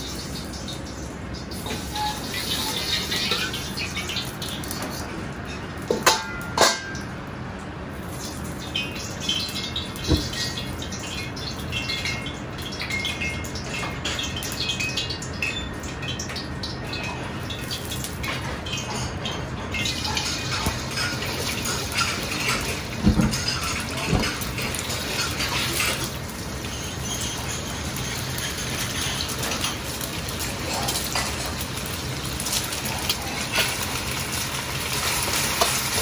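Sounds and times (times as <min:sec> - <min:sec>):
egg sizzling in hot oil: 0:00.0 - 0:05.1, 0:07.9 - 0:36.0
metal ladle clinking against wok: 0:05.9 - 0:07.0.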